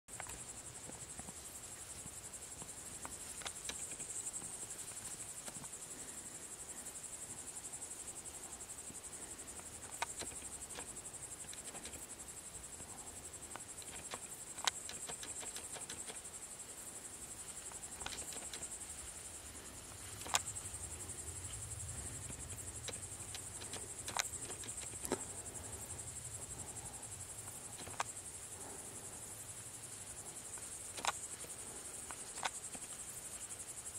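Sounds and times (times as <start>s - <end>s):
crickets chirring: 0.1s - 33.9s
sharp clicks and snaps: 3.4s - 4.1s, 9.8s - 12.0s, 13.5s - 16.2s, 18.0s - 18.7s, 20.2s - 20.5s, 22.2s - 25.3s, 27.5s - 28.2s, 30.6s - 31.4s, 32.1s - 33.0s.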